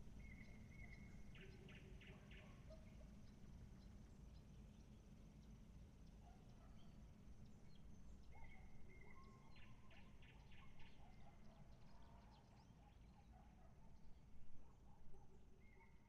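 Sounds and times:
bird singing: 0:00.1 - 0:05.0, 0:06.1 - 0:13.3.

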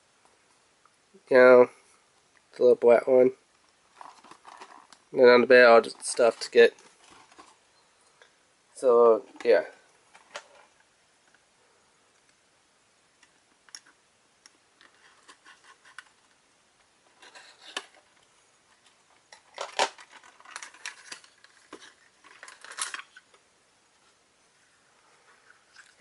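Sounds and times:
rustling and scraping: 0:03.9 - 0:05.0, 0:05.6 - 0:07.7, 0:14.8 - 0:16.4, 0:17.0 - 0:23.4.

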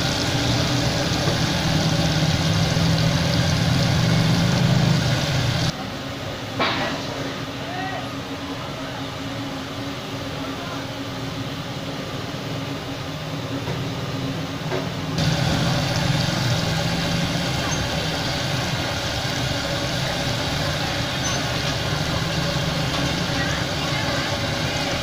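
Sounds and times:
chicken deep-frying in oil: 0:00.0 - 0:05.8, 0:15.2 - 0:25.0.

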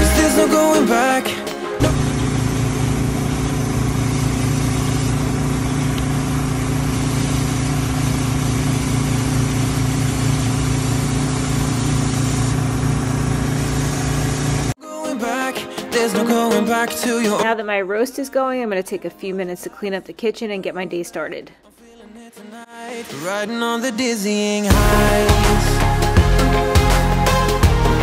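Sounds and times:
air compressor engine running: 0:01.8 - 0:14.8
air hissing from sprinkler: 0:02.0 - 0:12.6.

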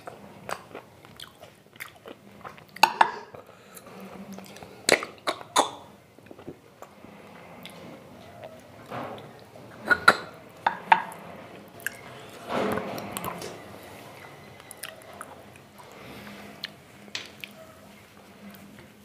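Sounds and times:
chewing and wet mouth sounds: 0:00.0 - 0:06.9.

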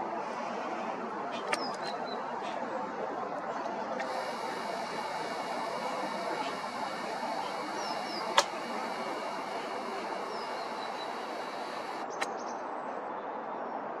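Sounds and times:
outdoor background noise: 0:00.0 - 0:14.0
sharp click: 0:04.0 - 0:12.4
faint bird chirps: 0:04.0 - 0:12.5.

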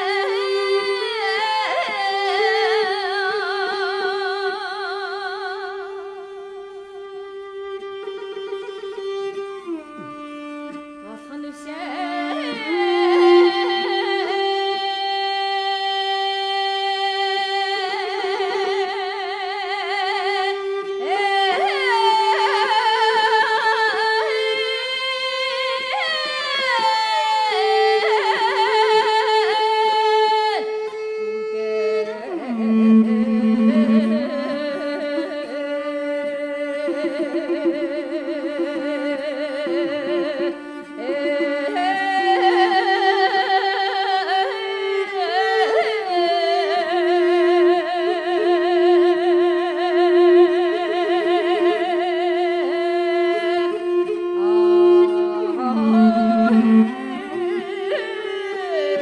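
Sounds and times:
woman singing with vibrato: 0:11.0 - 0:31.0, 0:32.0 - 0:35.6, 0:36.6 - 0:59.0
sustained accompanying notes: 0:53.8 - 0:59.0.

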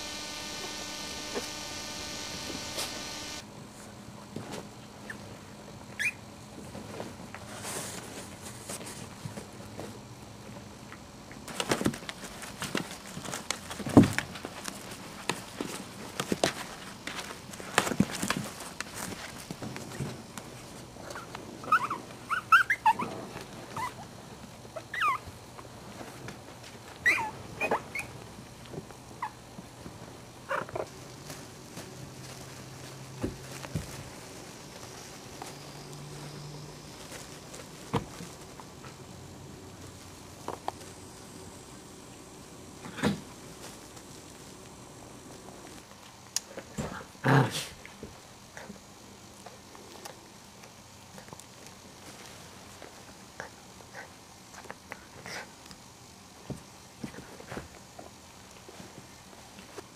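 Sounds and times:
puppy squeak: 0:06.0 - 0:06.2, 0:21.6 - 0:23.1, 0:27.0 - 0:28.1.

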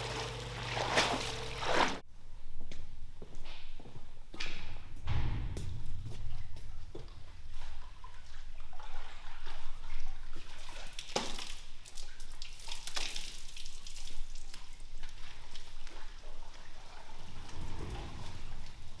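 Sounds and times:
wet rug splashing and slapping: 0:00.0 - 0:02.0, 0:08.0 - 0:17.0
water dripping and splattering: 0:06.4 - 0:19.0.

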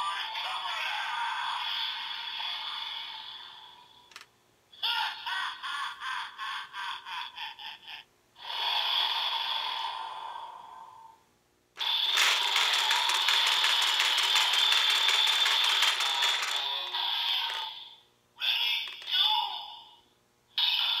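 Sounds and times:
toy belt electronic sound effects: 0:11.8 - 0:17.8, 0:18.8 - 0:19.1.

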